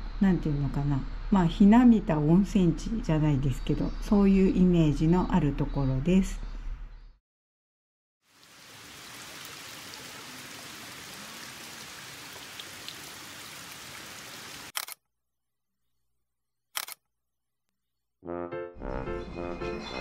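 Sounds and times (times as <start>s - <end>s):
water running into stone basin: 8.3s - 14.7s.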